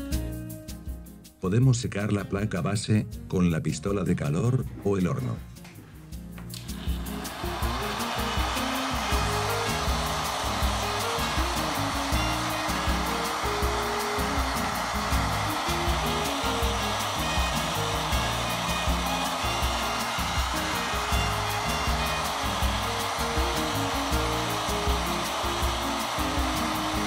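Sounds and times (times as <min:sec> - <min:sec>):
background music with beat: 0:00.0 - 0:01.9, 0:03.0 - 0:27.0
heat gun fan blowing: 0:06.6 - 0:27.0.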